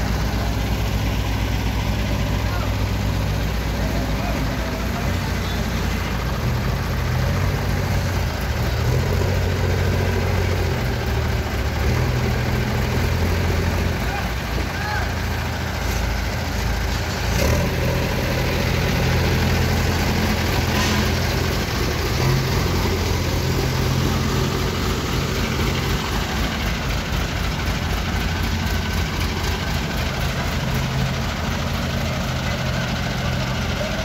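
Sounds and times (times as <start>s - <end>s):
diesel engine idling: 0.0s - 34.0s.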